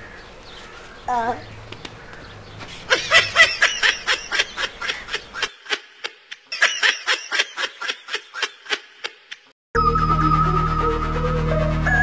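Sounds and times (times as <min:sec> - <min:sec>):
man laughing hard: 0:02.9 - 0:09.5.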